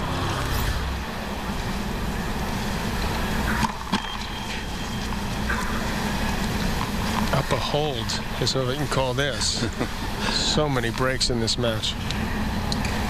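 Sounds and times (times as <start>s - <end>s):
static hum: 0.0s - 13.0s
racket striking ball: 3.5s - 4.3s.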